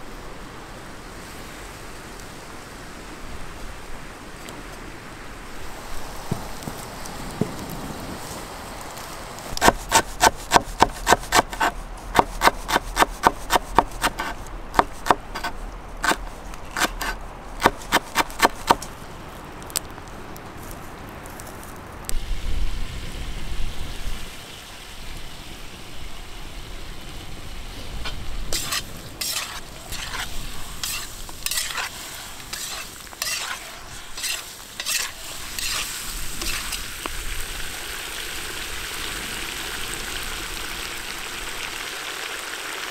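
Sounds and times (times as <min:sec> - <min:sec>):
food sizzling: 0:22.1 - 0:42.9
ladle scraping pot: 0:28.0 - 0:36.8.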